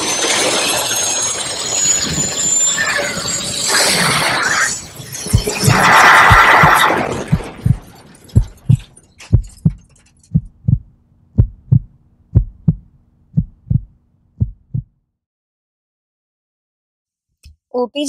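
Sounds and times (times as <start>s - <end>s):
crash: 3.7s - 10.2s
heartbeat thumps: 5.3s - 15.0s.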